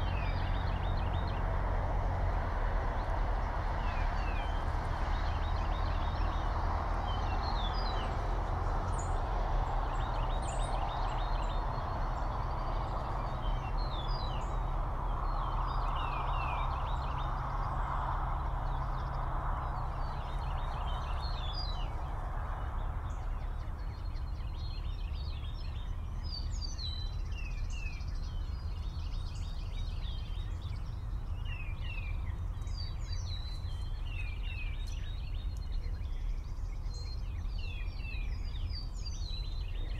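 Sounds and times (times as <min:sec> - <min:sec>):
outdoor rush: 0:00.0 - 0:39.9
songbirds chirping: 0:00.0 - 0:39.9.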